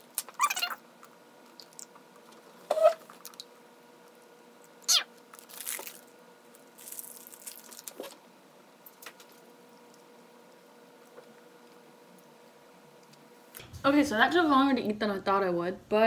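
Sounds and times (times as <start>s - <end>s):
squeaky sped-up vocal noises: 0.4s - 0.8s, 4.9s - 5.1s
plastic wrapper crinkling: 5.3s - 8.2s.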